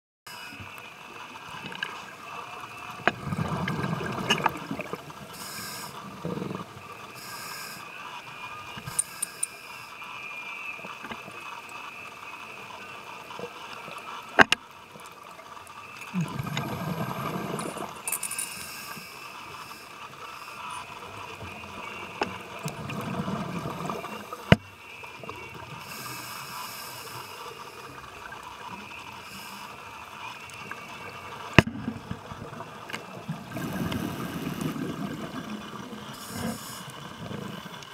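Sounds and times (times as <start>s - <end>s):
gurgling exhaled bubbles: 3.0s - 5.2s, 6.0s - 6.8s, 16.1s - 18.0s, 21.5s - 24.4s, 31.6s - 37.9s
regulator hiss: 4.7s - 13.1s, 15.2s - 22.8s, 23.9s - 31.6s, 33.2s - 37.8s.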